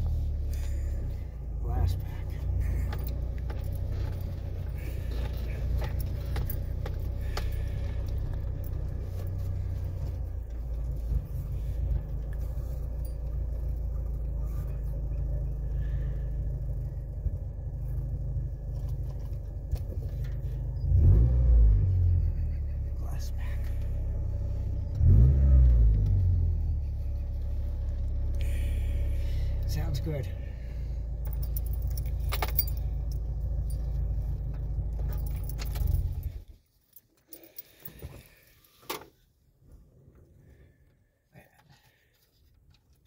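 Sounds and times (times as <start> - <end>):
engine drone from inside cab: 0.0 - 43.0
keys jangling: 31.2 - 34.0, 34.8 - 38.3.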